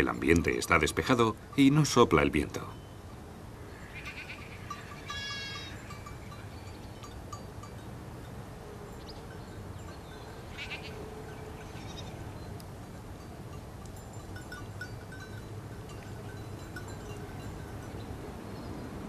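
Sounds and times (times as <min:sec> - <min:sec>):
sheep bleating: 0:03.8 - 0:05.8, 0:10.5 - 0:11.0
faint light clinks: 0:11.3 - 0:18.3.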